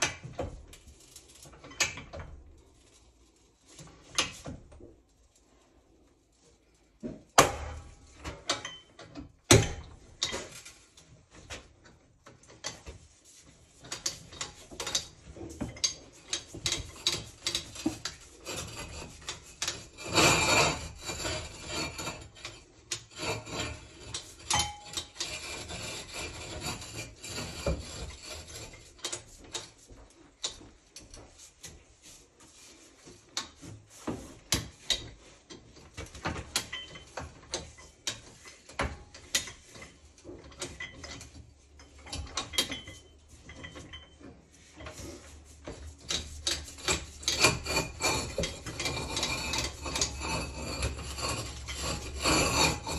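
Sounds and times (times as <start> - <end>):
pipe cutter ratchet clanking: 46.1 - 52.9.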